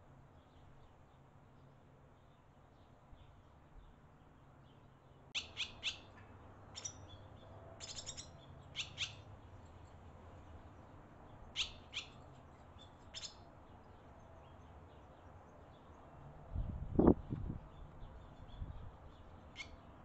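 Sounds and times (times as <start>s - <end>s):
swallows chirping: 5.4s - 6.2s, 6.8s - 9.3s, 11.6s - 15.9s.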